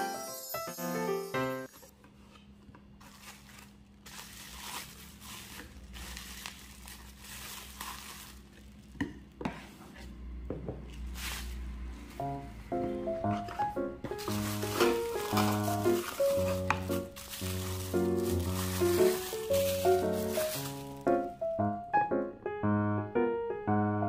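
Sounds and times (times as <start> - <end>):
bubble wrap crinkling: 2.9 - 9.0, 11.1 - 12.2, 13.4 - 21.6.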